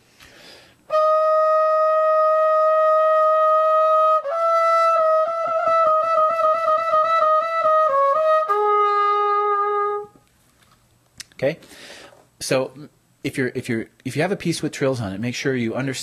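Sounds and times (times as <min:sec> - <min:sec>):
solo trumpet: 0:00.9 - 0:10.2.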